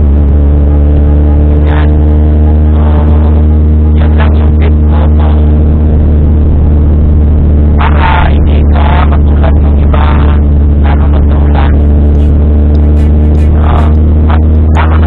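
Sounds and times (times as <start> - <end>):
car engine drone: 0.0 - 15.0
short high-pitched bursts: 11.8 - 13.9.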